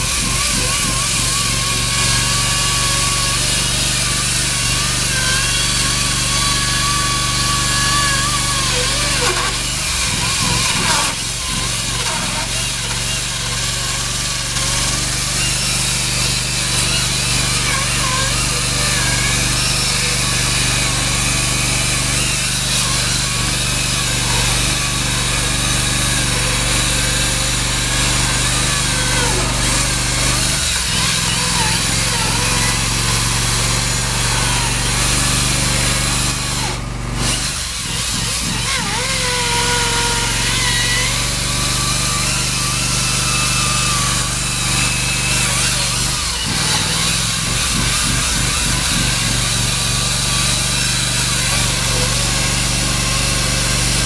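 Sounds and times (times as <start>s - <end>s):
chainsaw grinding through concrete: 0.0s - 54.0s.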